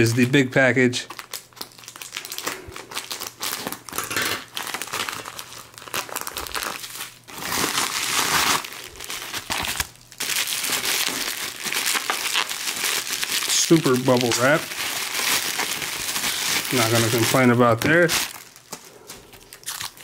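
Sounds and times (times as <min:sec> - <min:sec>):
bubble wrap crinkling: 0:00.0 - 0:20.0.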